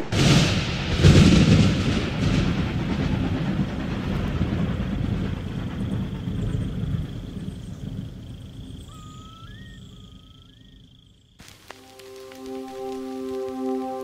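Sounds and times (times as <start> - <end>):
train rumbling past: 0.0 - 9.0.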